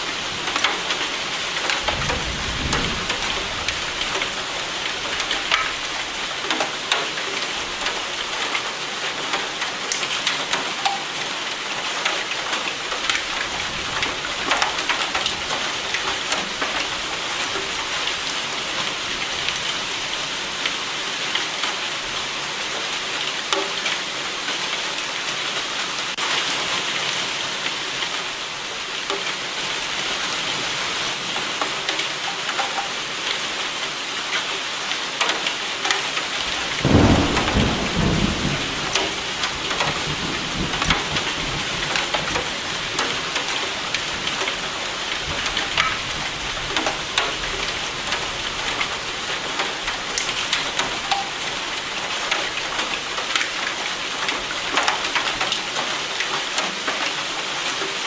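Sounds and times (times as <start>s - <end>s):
raindrops hitting a surface: 0.0s - 58.0s
steady rain hiss: 0.0s - 58.0s.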